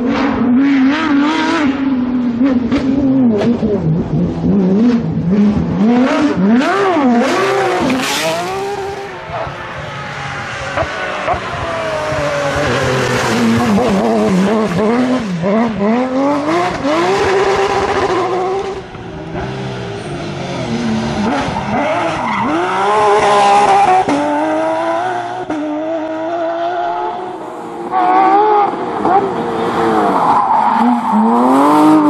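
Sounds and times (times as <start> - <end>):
rally car engines revving hard: 0.0 - 32.0.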